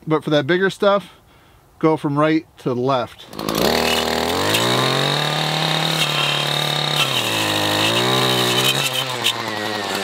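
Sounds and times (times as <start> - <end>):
brush cutter engine revving: 3.1 - 10.0.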